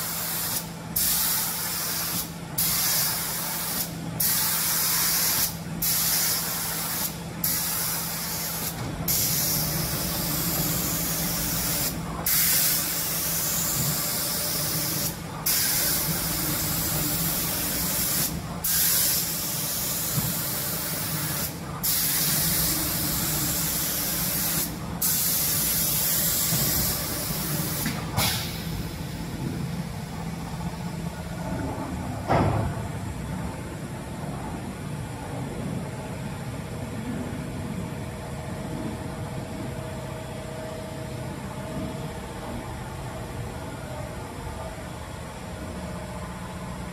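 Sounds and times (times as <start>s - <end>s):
air spray gun hissing: 0.0s - 29.4s
low machine hum: 0.0s - 46.9s.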